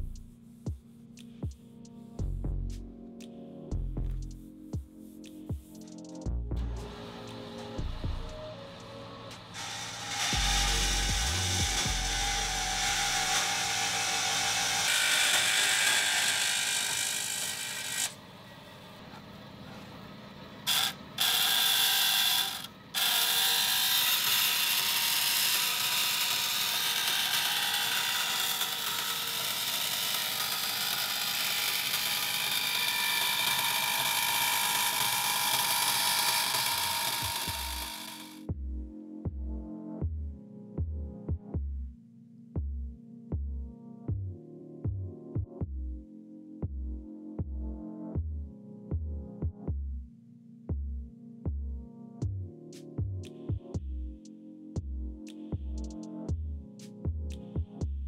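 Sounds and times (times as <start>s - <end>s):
band saw cutting sheet steel: 6.8s - 18.2s, 20.6s - 38.4s.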